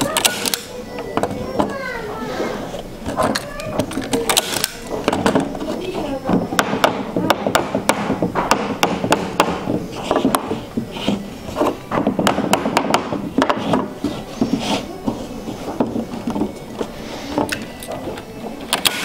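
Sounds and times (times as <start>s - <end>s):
taps on wooden frame: 11.9s - 13.9s.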